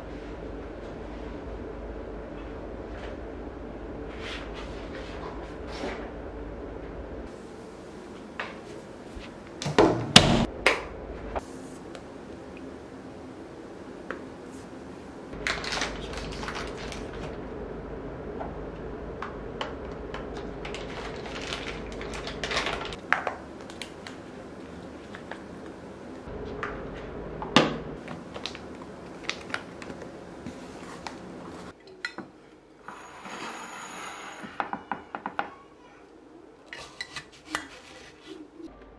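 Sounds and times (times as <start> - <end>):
plastic wrapper crinkling: 15.4 - 17.4, 20.6 - 24.3, 28.3 - 30.0.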